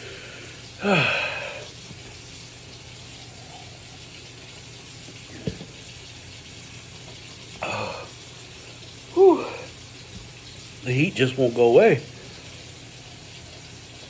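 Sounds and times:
man blowing out hard breath: 0.0s - 1.7s.

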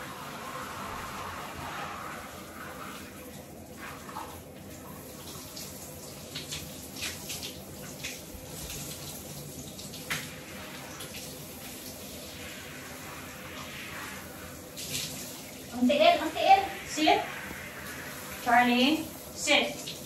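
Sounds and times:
shower water running: 0.0s - 20.0s.

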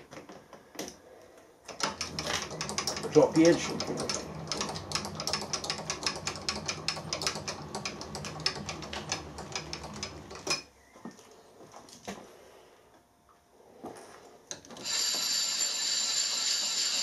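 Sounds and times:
rapid ticking clatter: 1.8s - 10.3s
milling machine spindle humming: 1.8s - 10.5s, 14.7s - 17.0s.

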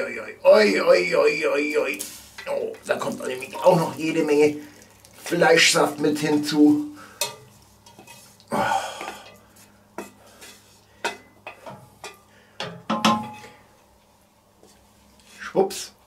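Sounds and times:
spatula scraping pan against rim: 7.2s - 8.4s.

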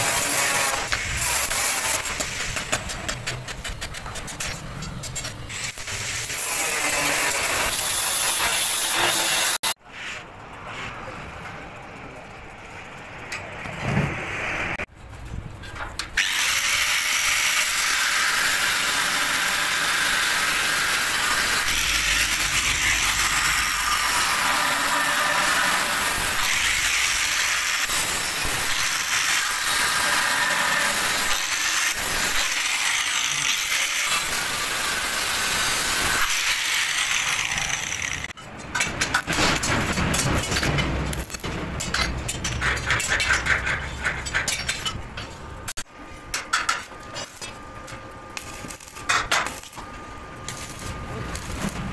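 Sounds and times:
metal knocks and clanks: 2.0s - 5.5s, 38.4s - 45.4s
angle grinder cutting steel: 5.5s - 9.8s, 16.2s - 38.4s.

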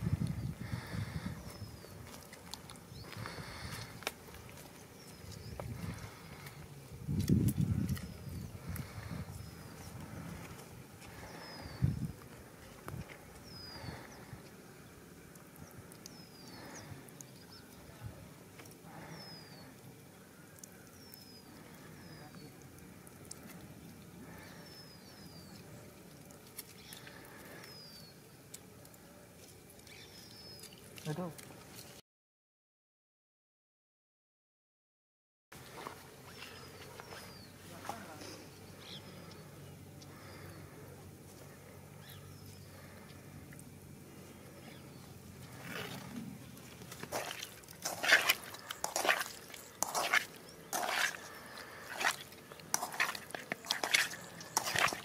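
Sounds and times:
bird chirping: 13.4s - 15.0s, 42.0s - 43.2s
hand squishing raw chicken: 45.4s - 55.0s
lemon squeezed dripping: 46.8s - 55.0s.

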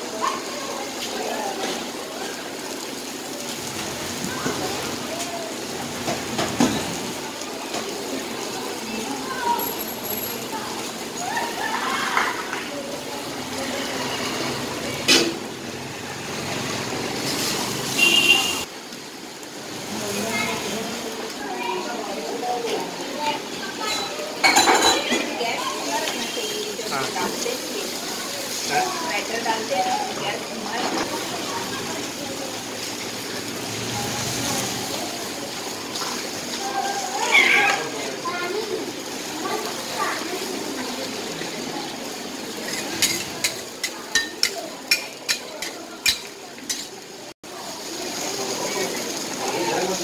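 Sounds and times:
griddle sizzling: 0.0s - 50.0s
noisy stall background: 0.0s - 50.0s
metal spatula on griddle: 13.9s - 15.5s, 17.2s - 18.3s, 23.9s - 27.3s, 42.6s - 47.1s.

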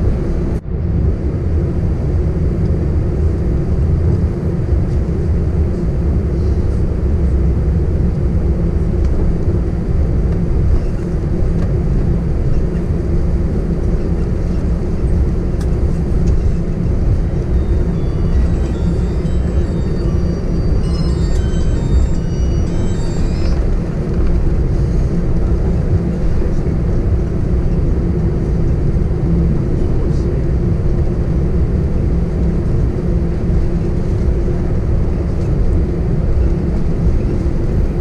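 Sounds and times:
aircraft engines idling rumble: 0.0s - 38.0s
aircraft rolling on taxiway: 0.0s - 38.0s.

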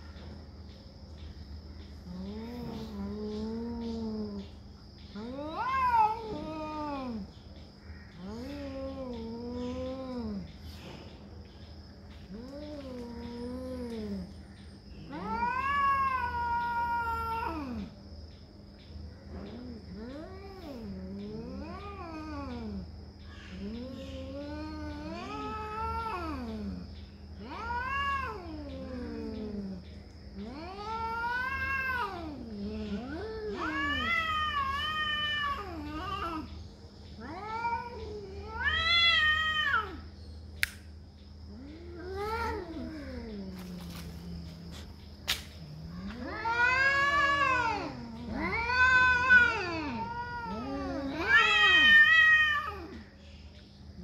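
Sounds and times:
cats yowling: 2.1s - 10.8s, 12.2s - 18.0s, 19.3s - 40.2s, 41.5s - 53.2s
sharp click: 40.6s - 40.9s, 45.2s - 45.6s.

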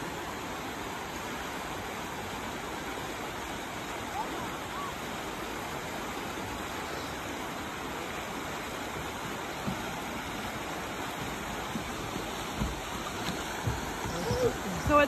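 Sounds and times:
water flowing over rocks: 0.0s - 15.0s
soft low thumps: 8.9s - 15.0s.

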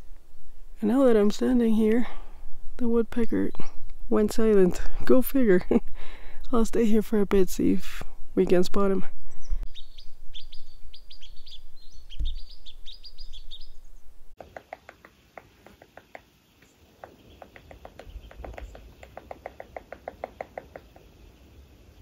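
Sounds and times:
small birds chirping: 9.2s - 22.0s
woodpecker tapping on wood: 14.4s - 21.3s.

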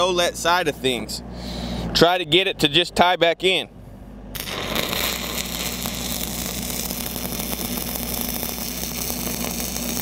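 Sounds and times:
low engine hum: 0.0s - 10.0s
welding arc crackling: 4.4s - 10.0s.

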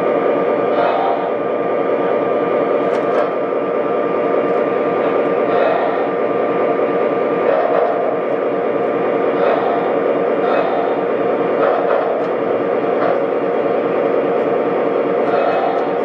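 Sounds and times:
toy train rolling on rails: 4.4s - 6.2s, 7.4s - 16.0s.

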